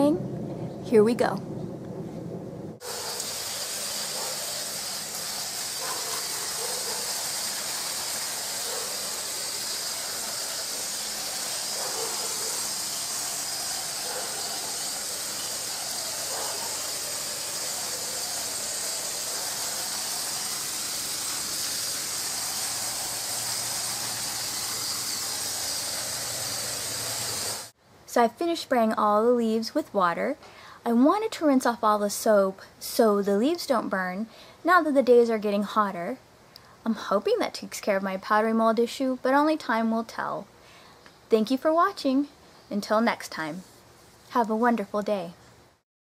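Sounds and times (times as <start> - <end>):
hose spraying water onto leaves: 2.8 - 27.8.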